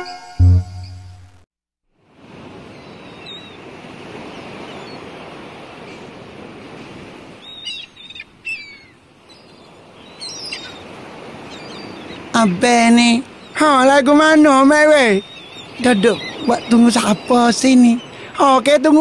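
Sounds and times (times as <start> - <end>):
waves washing: 2.0 - 19.0
birds chirping: 2.7 - 5.1, 7.4 - 19.0.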